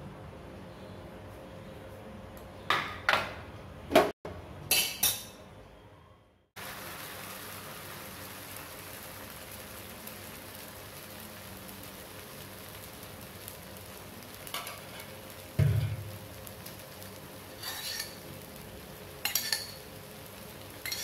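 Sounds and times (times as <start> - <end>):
metal ladle clanking on iron griddle: 4.7 - 5.4, 14.5 - 16.1, 17.6 - 18.2, 19.2 - 19.8
batter sizzling on hot griddle: 6.6 - 21.0.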